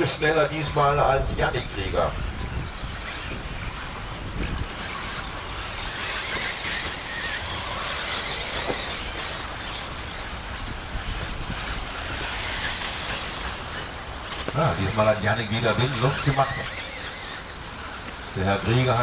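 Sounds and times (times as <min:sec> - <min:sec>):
rc buggies racing: 0:00.0 - 0:19.0
wind on the microphone: 0:00.0 - 0:19.0.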